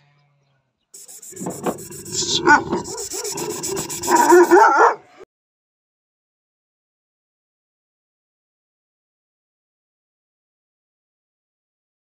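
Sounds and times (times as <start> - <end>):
steady hiss: 1.0 - 4.6
dogs barking and whining: 1.4 - 5.2.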